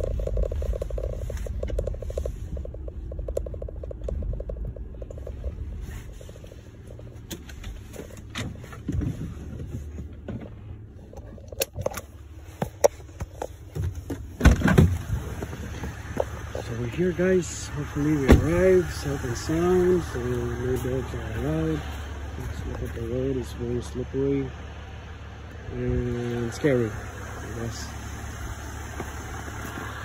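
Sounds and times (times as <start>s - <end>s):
fast rattle: 0.0s - 6.7s
car driving rumble: 0.0s - 30.0s.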